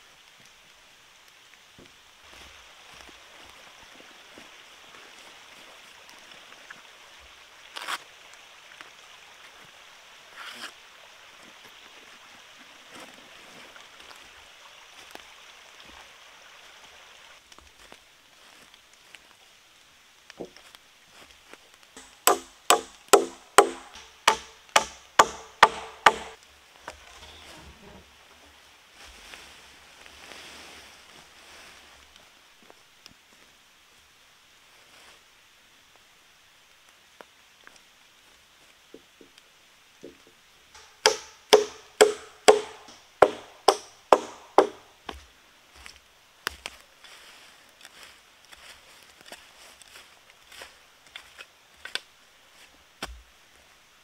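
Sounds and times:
hammer driving nail into wood: 0:22.0 - 0:26.4, 0:40.8 - 0:44.8.

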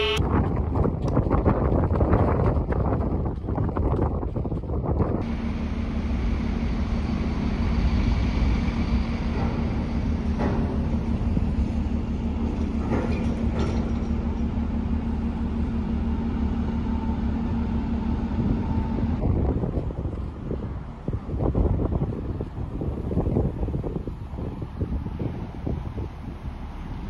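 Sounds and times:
ship machinery droning: 0:00.0 - 0:00.2, 0:05.2 - 0:19.3.

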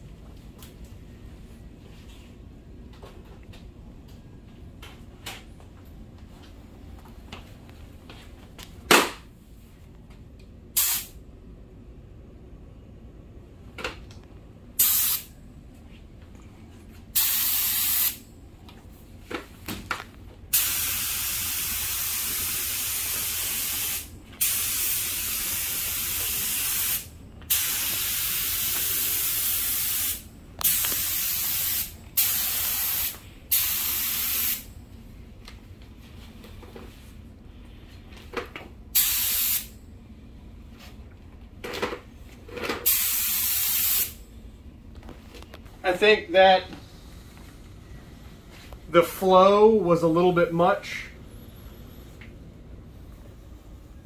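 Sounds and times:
spray gun hissing: 0:10.8 - 0:11.1, 0:14.8 - 0:15.3, 0:17.2 - 0:18.2, 0:20.5 - 0:34.6, 0:39.0 - 0:39.7, 0:42.9 - 0:44.2.

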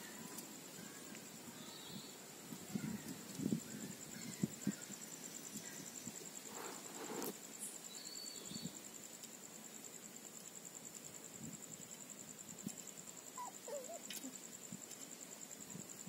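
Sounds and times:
crickets chirping: 0:00.0 - 0:16.0
scuffling rustle: 0:06.4 - 0:07.4.

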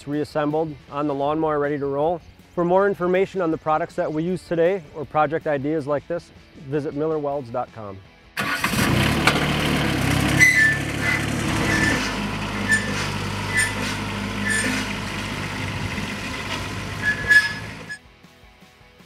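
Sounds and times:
riding mower engine running: 0:08.4 - 0:18.0.

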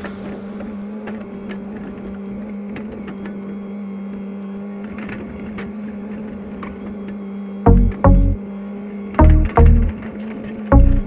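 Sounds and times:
excavator engine running: 0:07.7 - 0:08.4, 0:09.2 - 0:11.0.

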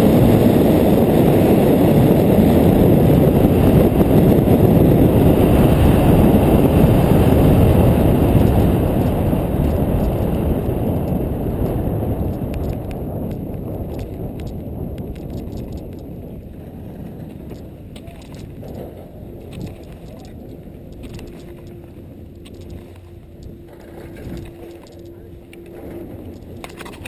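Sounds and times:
wind rushing over microphone: 0:00.0 - 0:27.0
faint clicks: 0:08.4 - 0:16.1, 0:17.4 - 0:27.0.

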